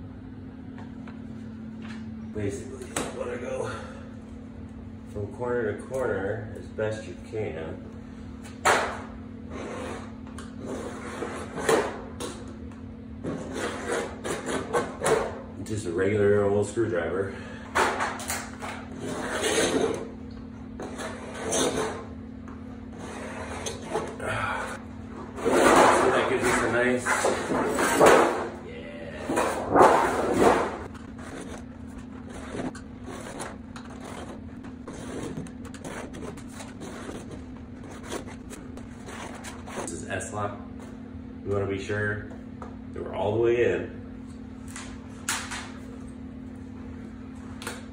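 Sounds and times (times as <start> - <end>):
scraping and rubbing on metal: 13.3 - 14.8, 18.6 - 20.1, 29.3 - 39.9.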